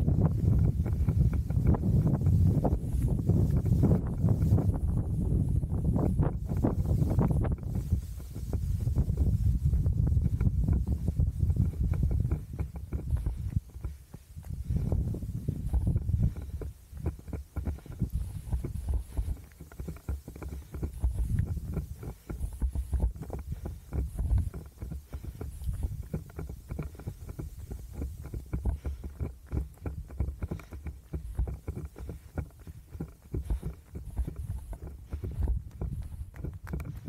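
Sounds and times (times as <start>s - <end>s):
microphone jostling rumble: 0.0s - 37.0s
running footfalls: 0.0s - 37.0s.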